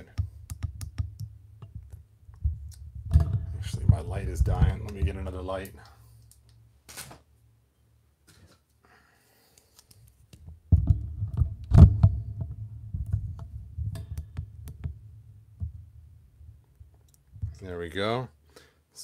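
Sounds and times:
handling noise on microphone: 2.4s - 5.7s, 10.4s - 15.0s.

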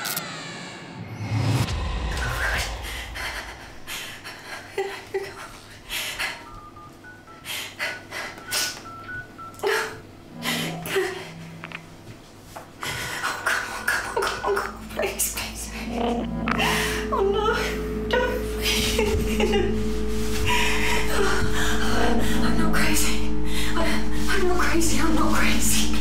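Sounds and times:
low impact hit: 1.0s - 4.1s
glitchy static crackles: 18.6s - 26.0s.

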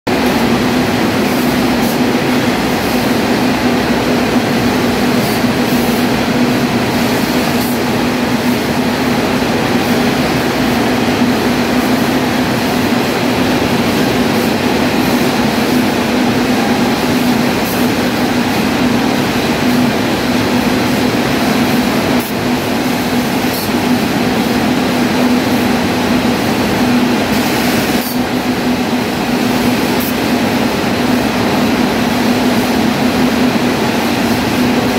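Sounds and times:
constant machine hum: 0.1s - 34.9s.

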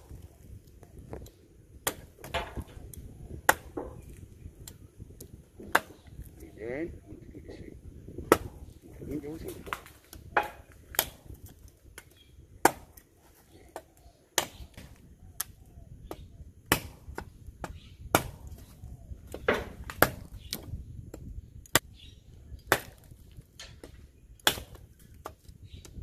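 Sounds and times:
cleaver chopping tree stem: 1.8s - 4.7s, 5.6s - 6.2s, 8.2s - 8.7s, 9.4s - 13.1s, 13.7s - 21.9s, 22.6s - 26.0s.

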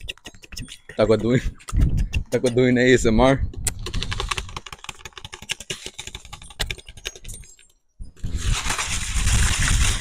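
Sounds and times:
close plastic rustling rub: 8.2s - 10.0s.

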